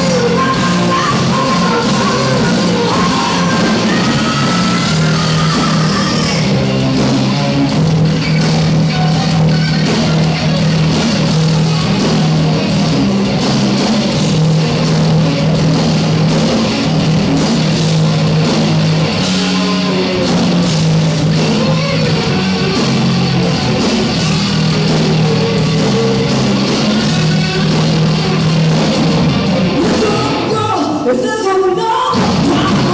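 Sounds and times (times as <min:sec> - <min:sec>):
person singing: 0:00.0 - 0:06.6, 0:29.8 - 0:32.9
distorted electric guitar: 0:00.0 - 0:32.9
drums: 0:00.0 - 0:32.9.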